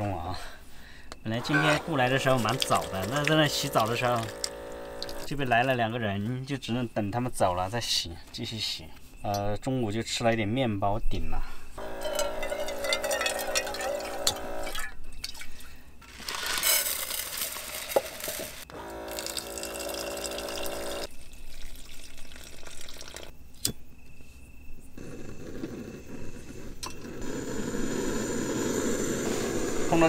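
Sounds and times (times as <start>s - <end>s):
electric pump humming: 1.3s - 5.7s, 11.8s - 14.9s, 18.4s - 21.1s, 27.2s - 30.0s
water splashing: 1.5s - 5.4s
gas stove burning: 11.8s - 14.7s, 25.0s - 30.0s.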